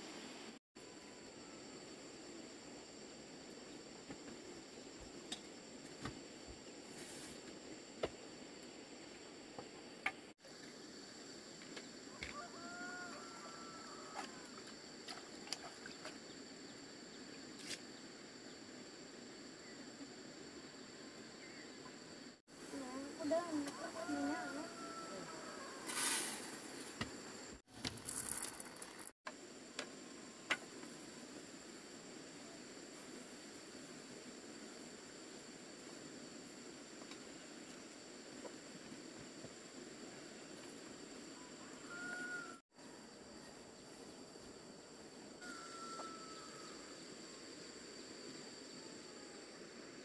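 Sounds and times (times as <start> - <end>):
insects calling in high tones: 19.5 - 32.6, 40.6 - 50.0.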